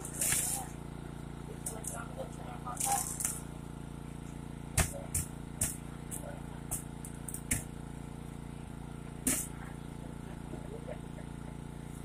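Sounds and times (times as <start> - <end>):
power unit engine hum: 0.0 - 12.0
sharp cracks of metal cutting: 2.8 - 3.5, 4.6 - 7.8, 9.2 - 9.5.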